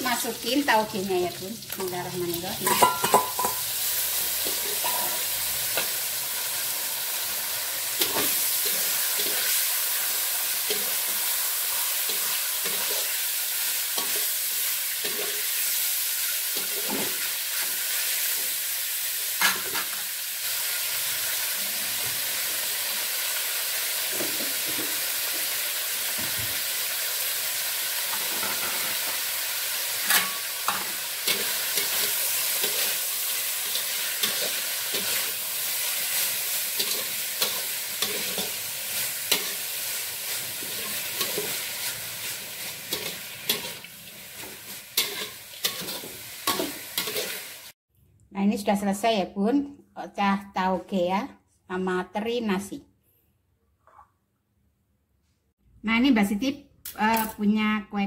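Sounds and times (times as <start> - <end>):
bean sprouts sizzling in a wok: 0.0 - 47.8
metal spatula scraping: 30.0 - 47.5.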